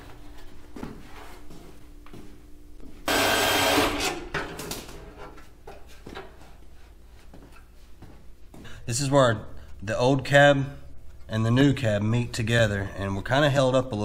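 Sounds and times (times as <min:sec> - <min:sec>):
power tool burst: 0:03.1 - 0:04.3.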